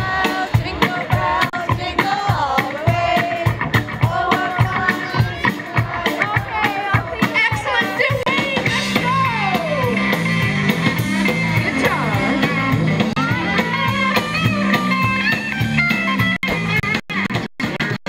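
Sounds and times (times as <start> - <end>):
woman singing into a microphone: 0.0 - 9.9
bass guitar: 0.0 - 18.0
drum kit: 0.0 - 18.0
electric guitars: 0.0 - 18.0.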